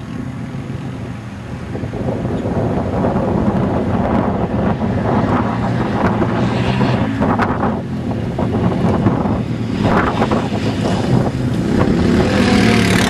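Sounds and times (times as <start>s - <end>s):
wind noise on microphone: 0.0s - 13.0s
quad engine revving: 5.0s - 13.0s.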